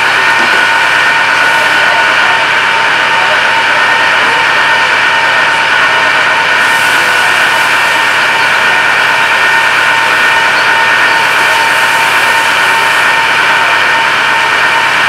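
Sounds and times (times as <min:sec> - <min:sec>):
engine running with whine: 0:00.0 - 0:15.0.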